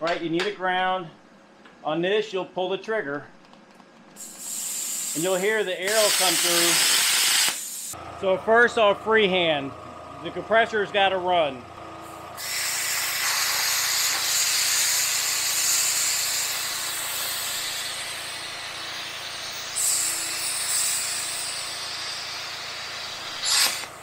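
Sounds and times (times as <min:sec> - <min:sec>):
plasma cutter hissing: 0:04.2 - 0:08.0, 0:12.4 - 0:24.0.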